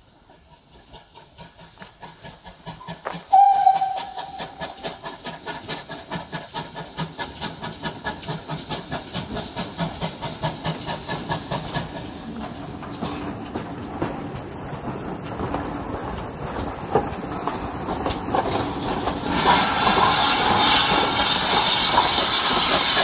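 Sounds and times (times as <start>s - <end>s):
steam locomotive chuffing: 0.0s - 23.0s
steam locomotive whistle: 3.3s - 4.8s.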